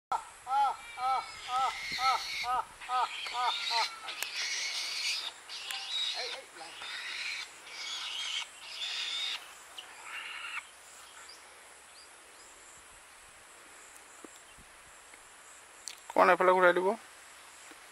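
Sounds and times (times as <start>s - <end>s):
bird screeching harshly: 0.8s - 9.4s, 10.0s - 10.6s.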